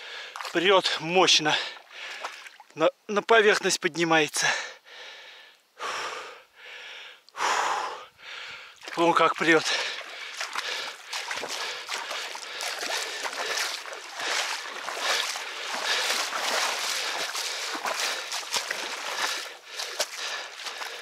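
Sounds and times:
water splashing and sloshing: 0.0s - 2.8s, 8.2s - 21.0s.

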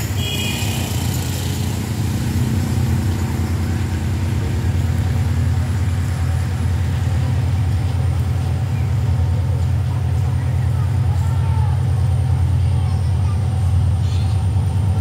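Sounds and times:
locomotive engine rumbling drone: 0.0s - 15.0s.

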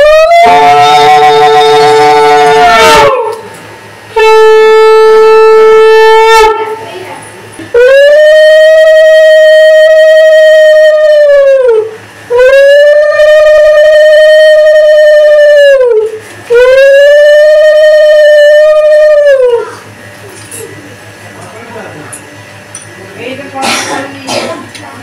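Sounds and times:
conch shell blasts: 4.1s - 6.8s.

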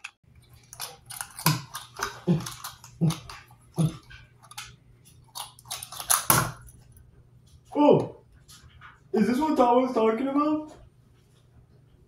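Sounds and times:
low steady hum: 0.0s - 12.0s
animal-like vocal noises: 2.0s - 4.2s.

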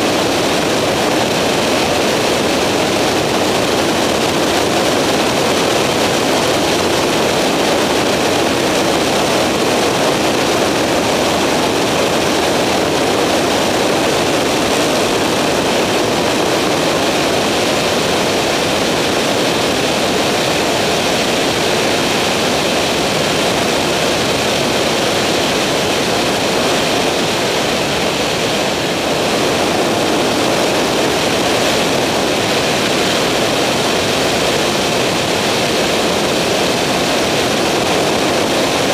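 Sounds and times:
aircraft engine and propeller droning: 0.0s - 38.9s
wind rushing over aircraft: 0.0s - 38.9s.

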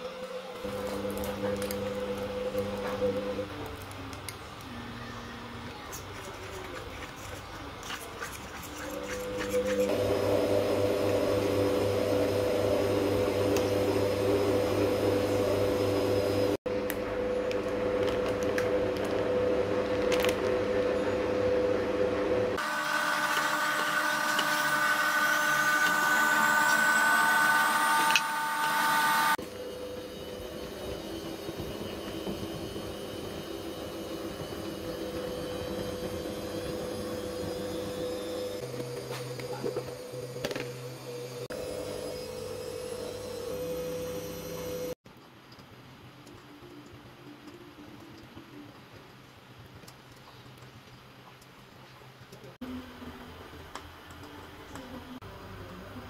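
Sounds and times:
machine hum: 9.1s - 45.0s.

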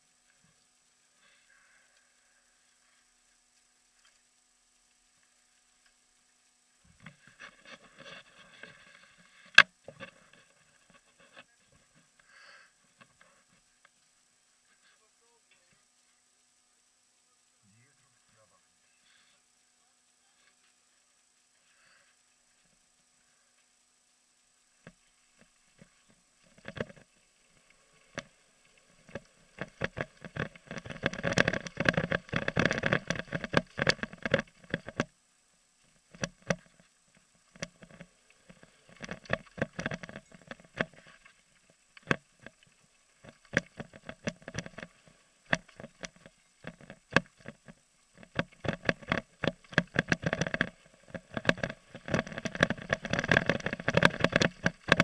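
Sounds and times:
mountain bike rattling on gravel: 29.1s - 35.0s, 48.2s - 55.0s.

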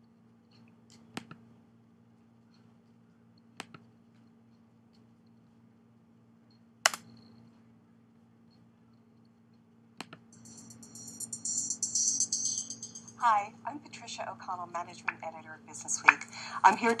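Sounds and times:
faint steady low hum: 12.6s - 17.0s.

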